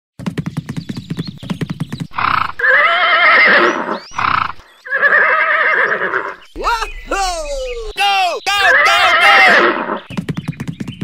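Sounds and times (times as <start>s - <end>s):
horse hooves clip-clopping: 0.2s - 2.8s, 10.0s - 11.0s
horse whinnying: 2.2s - 6.4s, 8.6s - 10.0s.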